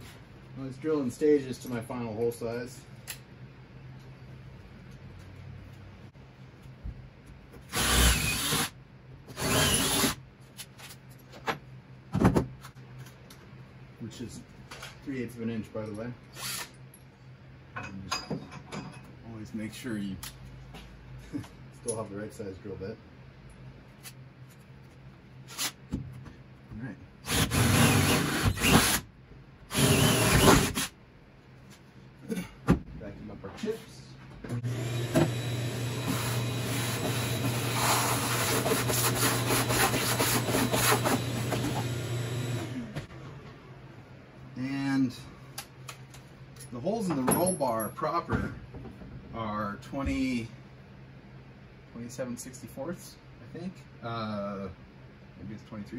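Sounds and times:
cordless drill boring through steel: 7.7 - 8.7, 9.4 - 10.2, 29.7 - 30.7, 34.7 - 37.8.

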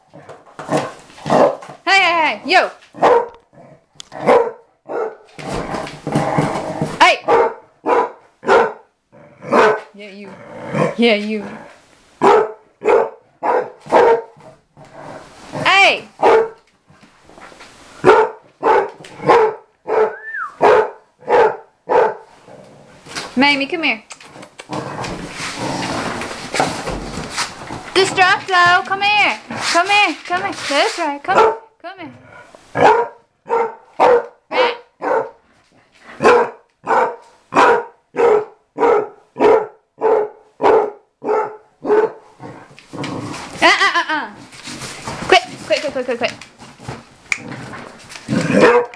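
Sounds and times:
dog barking: 1.3 - 1.6, 3.0 - 3.4, 4.2 - 5.3, 7.2 - 8.9, 9.5 - 9.9, 12.2 - 14.4, 16.2 - 16.6, 18.0 - 22.3, 31.3 - 31.7, 32.8 - 35.4, 36.2 - 42.2, 48.5 - 48.9.

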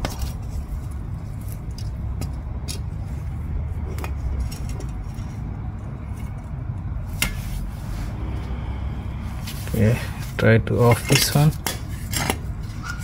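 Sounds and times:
low rumble: 2.0 - 10.4.

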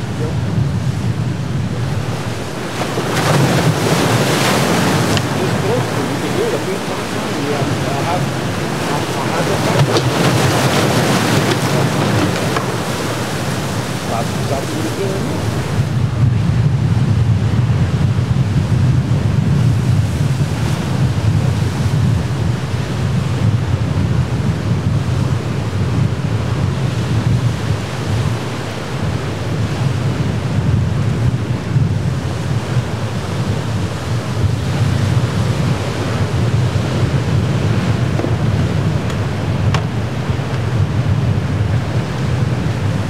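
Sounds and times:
waves washing over rocks: 0.0 - 16.2, 17.8 - 43.0
wind on microphone: 0.0 - 43.0.

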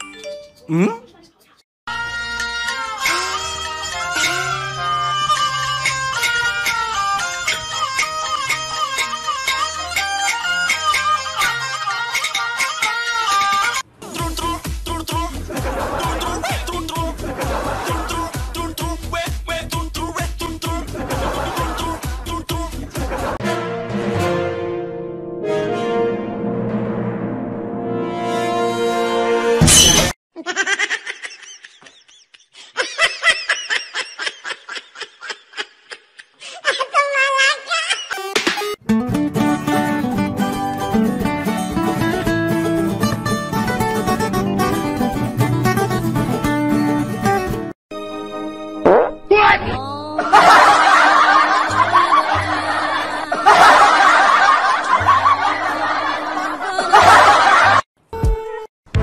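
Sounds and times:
person laughing: 0.7 - 1.2, 15.5 - 18.4, 21.0 - 22.4, 30.4 - 38.4, 50.1 - 57.8
background music: 1.9 - 30.1, 38.8 - 56.2.

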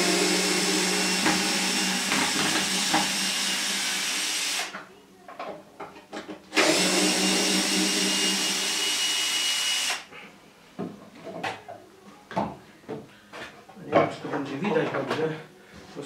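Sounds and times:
cordless drill running: 0.0 - 4.8, 6.6 - 10.1.

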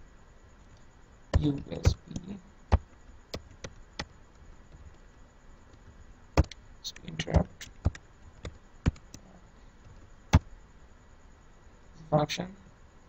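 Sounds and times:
keyboard keystroke clicks: 6.4 - 9.2.

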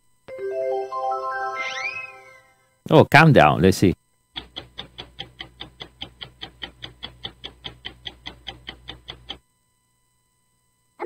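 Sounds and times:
rapid ticking: 4.4 - 9.4.

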